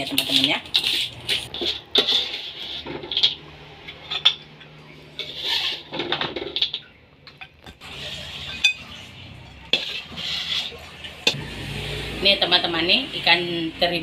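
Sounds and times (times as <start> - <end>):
metal spatula scraping a wok: 0.0 - 7.0, 7.8 - 11.4.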